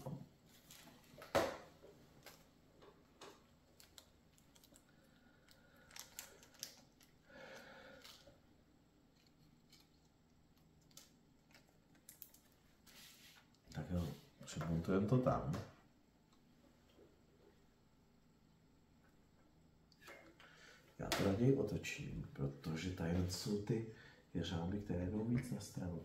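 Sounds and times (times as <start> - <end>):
faint clicks of small parts: 2.2 - 8.4, 9.1 - 12.6.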